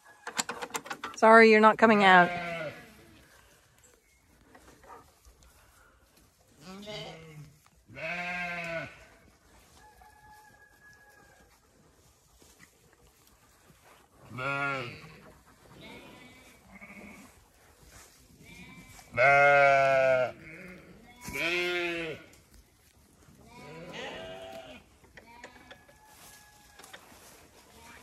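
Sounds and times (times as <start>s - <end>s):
sheep bleating: 2.0s - 3.0s, 6.6s - 9.1s, 14.3s - 15.1s, 15.8s - 17.4s, 18.4s - 22.2s, 23.4s - 24.8s.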